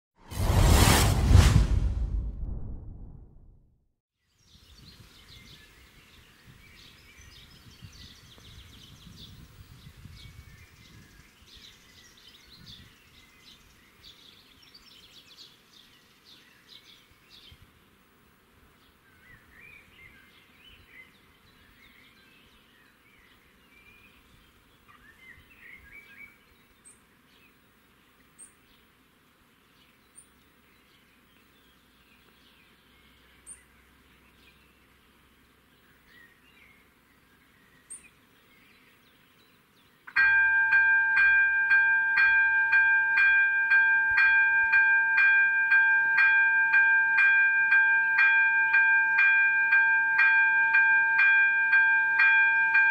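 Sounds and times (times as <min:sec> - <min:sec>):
low rumble: 0:00.2 - 0:03.7
songbirds trilling and chirping: 0:04.3 - 0:17.8, 0:18.6 - 0:52.9.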